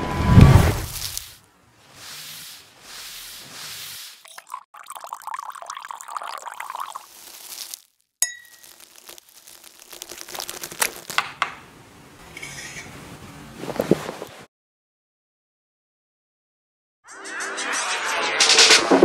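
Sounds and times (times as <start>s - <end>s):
spoon stirring liquid in mug: 4.2s - 7.4s
spoon clinking on glass: 8.2s - 8.8s.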